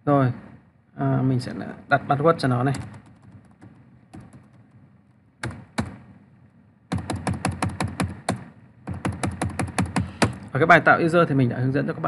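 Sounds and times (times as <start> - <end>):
keyboard key taps: 2.7 - 4.7, 6.9 - 10.4.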